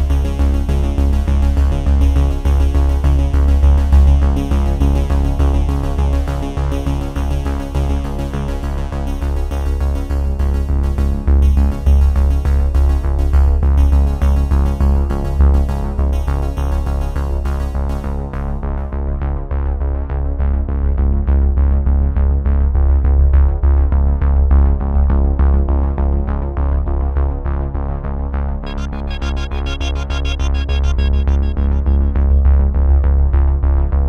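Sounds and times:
electronic synthesizer music: 0:28.6 - 0:33.6.

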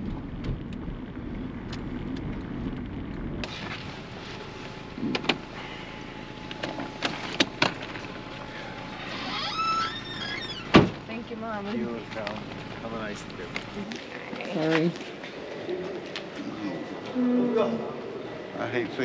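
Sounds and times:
car engine and road noise: 0:00.0 - 0:17.0
open-air background: 0:00.0 - 0:19.0.

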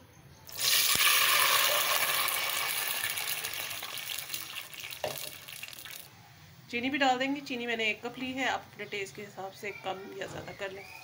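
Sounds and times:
water hissing in hot ghee: 0:00.5 - 0:06.1.

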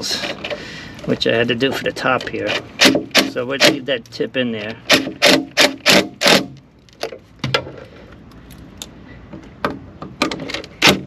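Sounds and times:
sharp clicks and metallic rattles: 0:02.0 - 0:09.0, 0:09.6 - 0:11.0.

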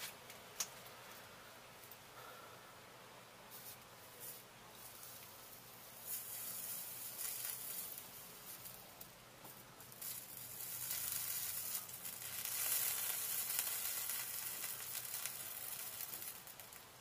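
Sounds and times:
solder paste sizzling: 0:03.4 - 0:17.0.

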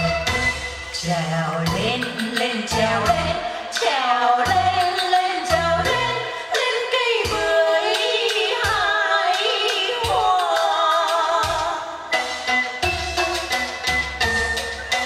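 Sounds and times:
repeated bass notes: 0:00.0 - 0:03.6, 0:04.4 - 0:06.2.

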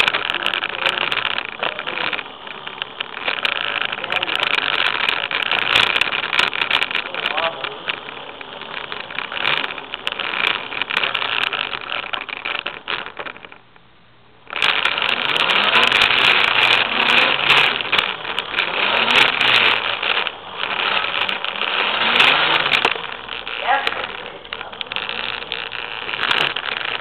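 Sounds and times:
electric scooter rattling on concrete: 0:00.0 - 0:27.0.

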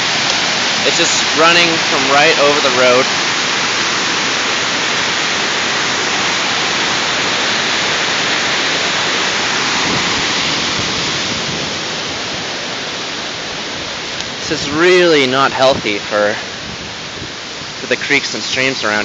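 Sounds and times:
floodwater rushing in a creek: 0:00.0 - 0:19.0.

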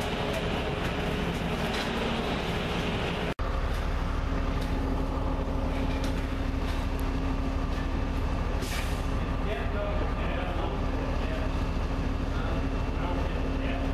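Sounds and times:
low engine drone: 0:00.0 - 0:13.9.

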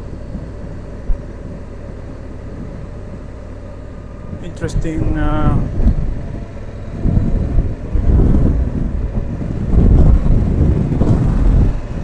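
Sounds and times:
motorcycle rumble: 0:00.0 - 0:12.0
wind buffeting microphone: 0:00.0 - 0:12.0.

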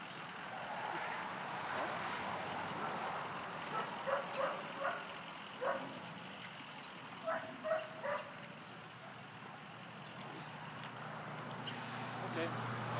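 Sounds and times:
dog barking: 0:03.7 - 0:06.0, 0:07.2 - 0:08.3.

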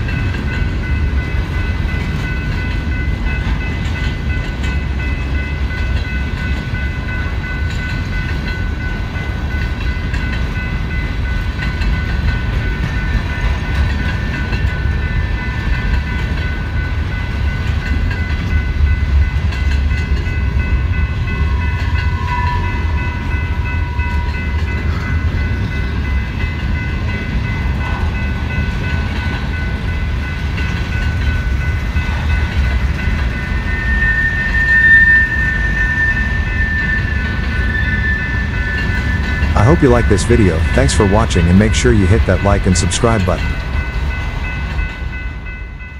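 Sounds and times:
train wheels rumbling on rail: 0:00.0 - 0:45.9
high-pitched tones: 0:33.4 - 0:43.8.

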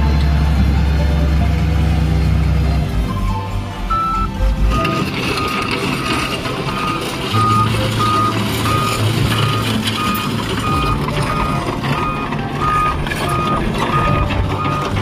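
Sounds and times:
diesel engine running: 0:00.0 - 0:15.0
excavator travel alarm beeping: 0:03.2 - 0:15.0.

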